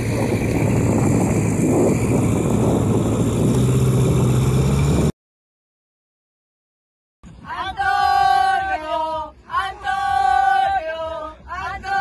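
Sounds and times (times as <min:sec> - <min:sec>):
water noise: 0:00.0 - 0:05.1
wind: 0:00.0 - 0:05.1, 0:07.2 - 0:12.0.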